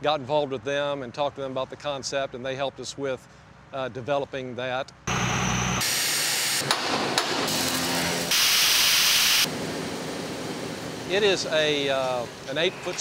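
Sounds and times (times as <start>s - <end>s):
steady hiss: 8.3s - 9.5s.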